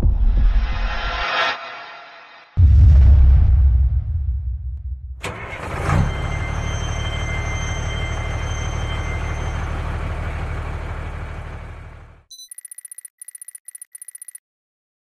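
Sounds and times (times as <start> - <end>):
engine starting and idling: 5.2 - 12.2.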